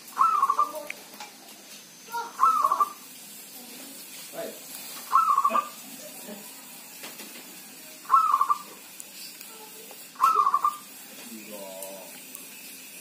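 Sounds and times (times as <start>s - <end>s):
dove cooing: 0.0s - 0.9s, 2.1s - 3.1s, 5.0s - 6.5s, 8.0s - 8.8s, 10.2s - 10.9s.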